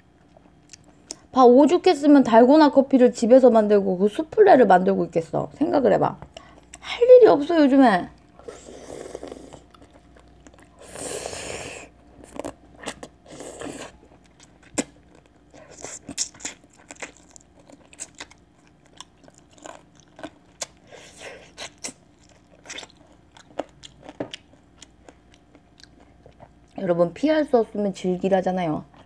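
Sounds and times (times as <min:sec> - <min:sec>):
person chewing meat: 0:00.0 - 0:01.3, 0:08.2 - 0:26.8.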